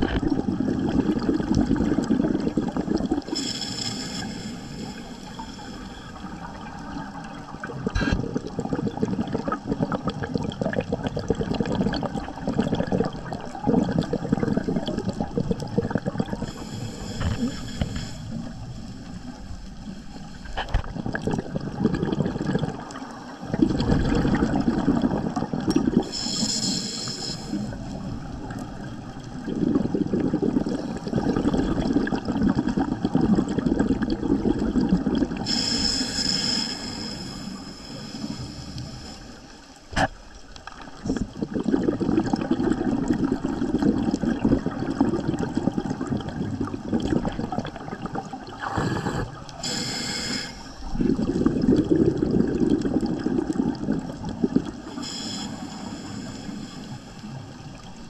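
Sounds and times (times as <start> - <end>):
exhaled bubbles rumbling: 0.0 - 3.5, 4.8 - 26.4, 27.1 - 36.0, 36.9 - 50.0, 50.6 - 58.0
regulator inhalation hiss: 3.3 - 6.3, 16.4 - 18.9, 26.0 - 28.0, 35.4 - 39.6, 48.6 - 50.9, 54.9 - 57.4.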